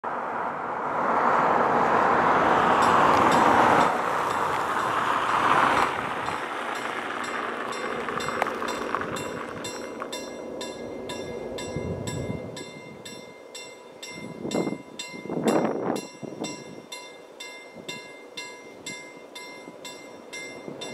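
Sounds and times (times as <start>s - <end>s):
car driving past: 0.0s - 12.6s
level crossing warning bell: 2.8s - 20.9s.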